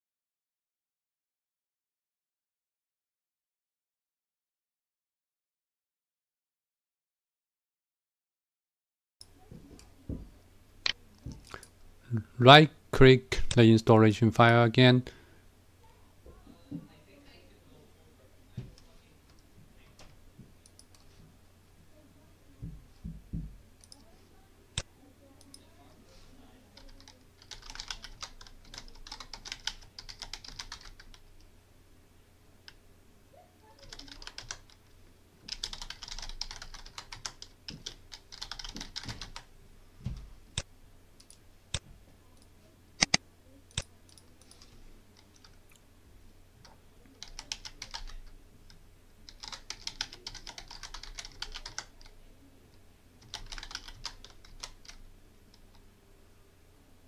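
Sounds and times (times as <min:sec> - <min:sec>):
computer keyboard typing: 0:20.6 - 0:21.1, 0:26.8 - 0:31.3, 0:33.8 - 0:34.8, 0:35.5 - 0:39.5, 0:43.0 - 0:45.6, 0:46.6 - 0:52.1, 0:53.2 - 0:55.7
sharp mouse clicks: 0:43.0 - 0:44.6.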